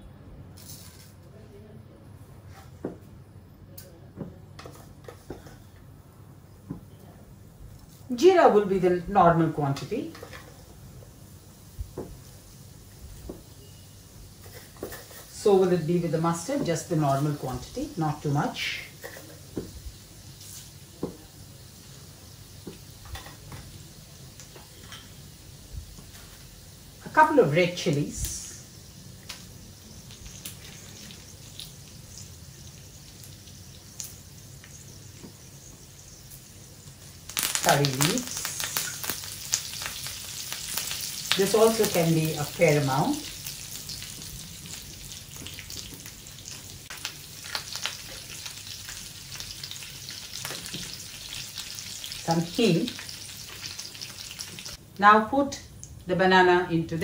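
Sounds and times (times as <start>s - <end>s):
oil sizzling in a frying pan: 7.8s - 55.1s
crackles and sharp pops: 36.3s - 42.0s.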